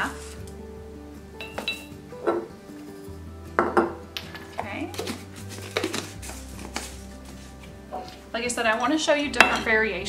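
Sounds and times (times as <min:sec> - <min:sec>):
soft background music: 0:00.0 - 0:10.0
metal spoon clinking on glass jar: 0:01.4 - 0:01.9.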